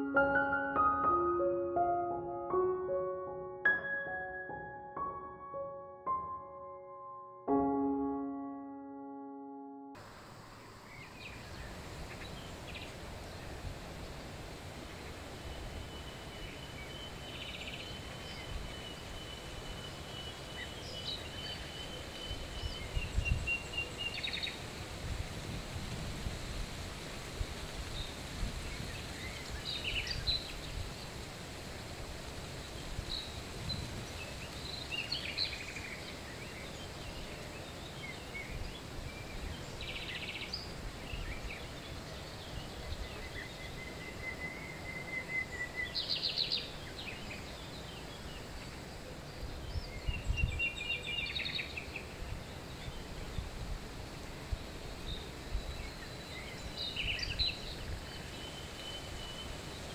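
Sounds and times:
small birds calling and trilling: 14.9 - 24.8, 27.9 - 31.2, 32.6 - 53.7, 54.4 - 59.9.

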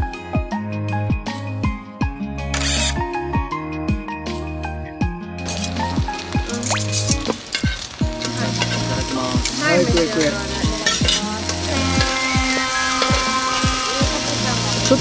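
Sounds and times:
background music with beat: 0.0 - 15.0
meat sizzling on a grill: 5.4 - 15.0.

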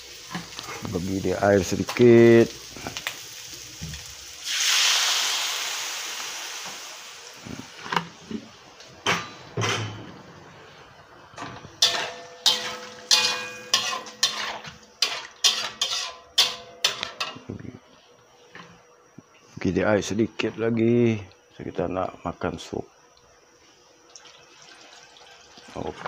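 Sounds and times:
water hissing in hot wok: 0.0 - 8.3
metal spatula scraping wok: 11.8 - 17.4.

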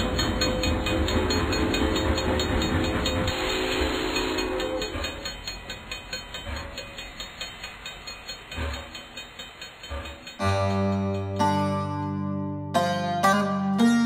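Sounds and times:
rhythmic train clatter: 0.0 - 11.8
low train rumble: 0.0 - 12.2
train horn: 3.3 - 5.0.

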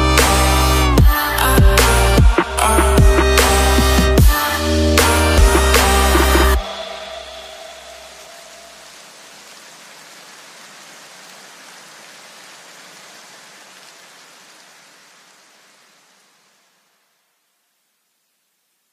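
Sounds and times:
electronic music low notes: 0.0 - 8.0
steady hiss: 3.4 - 18.9.

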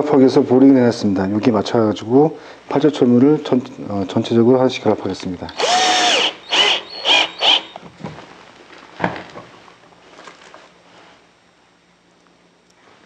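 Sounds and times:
cordless drill motor whine: 5.5 - 7.8.

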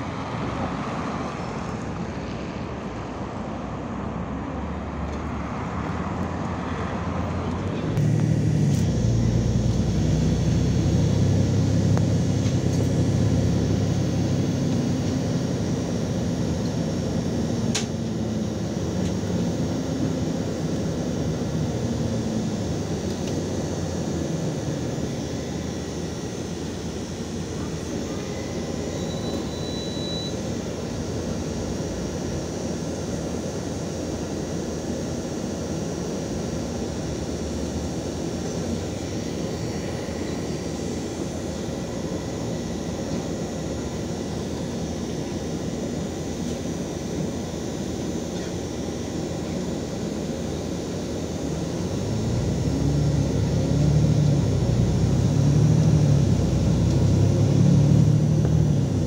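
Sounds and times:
bus diesel engine: 0.0 - 59.0.

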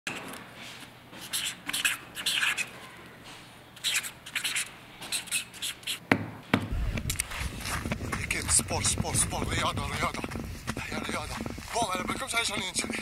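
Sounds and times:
marker pen scratching on paper: 1.2 - 2.8, 3.8 - 6.0.

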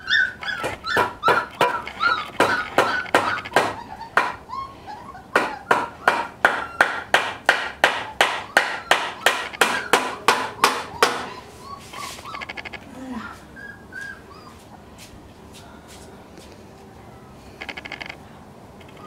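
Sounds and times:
high puppy squeaks: 0.0 - 7.2, 7.8 - 14.8, 18.8 - 19.0.

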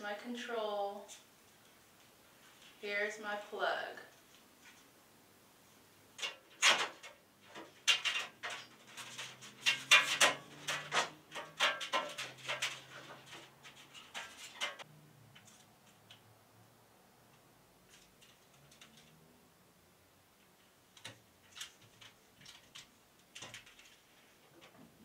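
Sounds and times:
handling clicks and knocks: 6.2 - 16.3.

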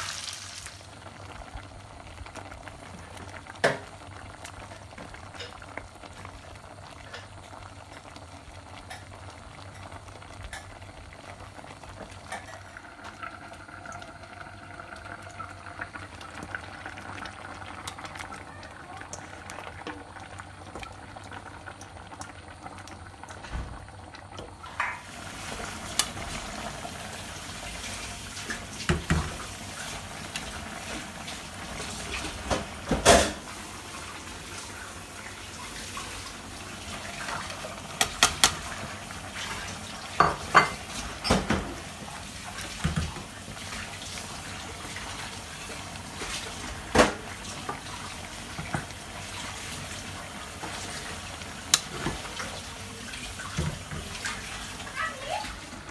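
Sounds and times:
curry simmering in a pot: 0.0 - 55.9.

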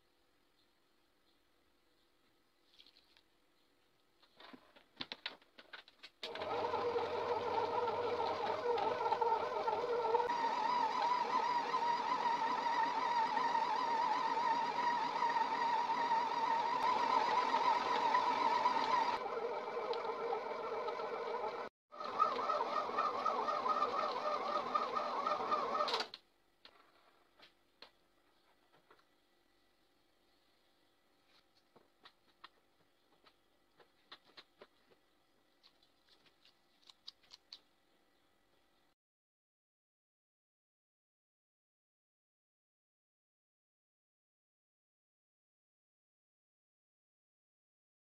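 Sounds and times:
stand mixer motor whine: 6.3 - 26.1.

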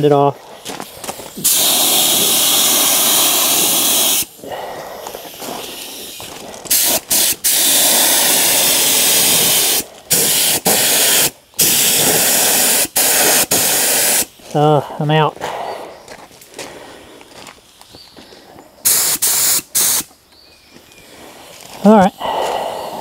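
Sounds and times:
spray gun hissing: 1.3 - 14.6, 18.8 - 20.1.

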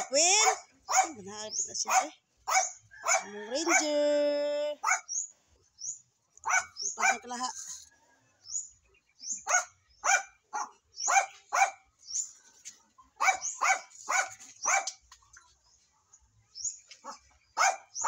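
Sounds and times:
small dog yapping: 0.0 - 1.2, 1.9 - 4.0, 4.8 - 5.1, 6.4 - 7.3, 9.4 - 11.8, 13.2 - 15.0, 17.0 - 18.0.

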